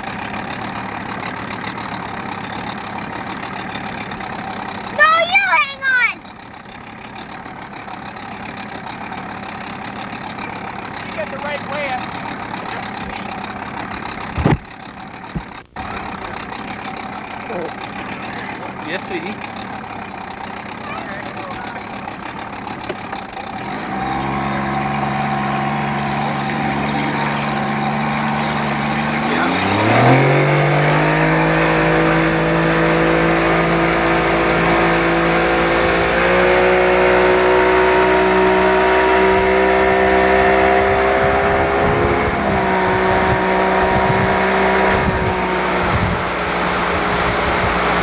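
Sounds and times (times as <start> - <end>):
motorboat engine: 0.0 - 48.0
wind and water rushing: 40.9 - 48.0.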